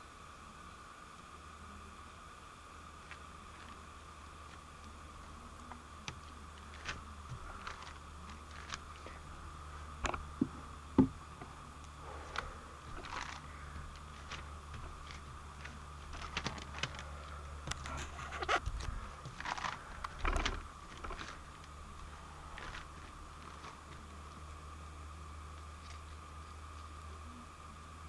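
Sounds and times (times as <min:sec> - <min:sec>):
low hum: 0:00.0 - 0:28.0
slime squelching: 0:11.4 - 0:24.0.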